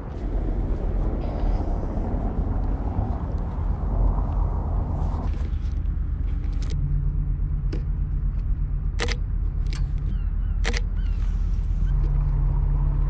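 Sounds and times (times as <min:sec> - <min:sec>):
steady low rumble: 0:00.0 - 0:13.0
camera shutter clicks: 0:09.0 - 0:09.8, 0:10.6 - 0:10.9.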